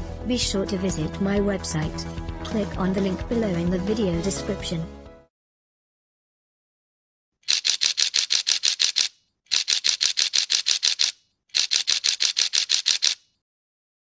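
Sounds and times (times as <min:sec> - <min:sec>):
camera shutter rapid clicks: 0:07.4 - 0:13.3.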